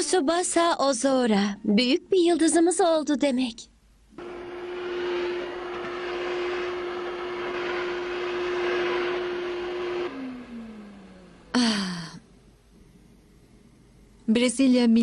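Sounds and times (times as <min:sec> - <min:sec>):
vacuum cleaner running: 0:04.2 - 0:11.8.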